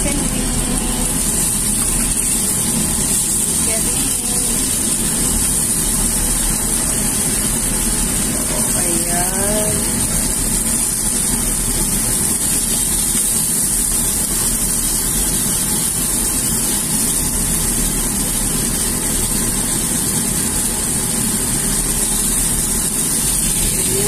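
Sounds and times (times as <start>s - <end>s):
low hum: 0.0s - 10.9s
chicken sizzling in hot oil: 0.0s - 24.0s.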